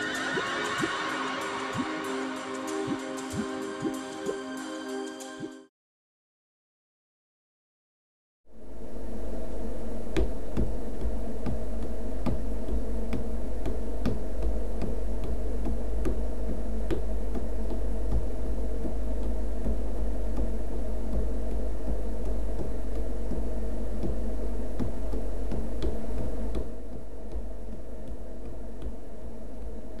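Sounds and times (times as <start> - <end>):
steady low hum: 8.5 - 30.0.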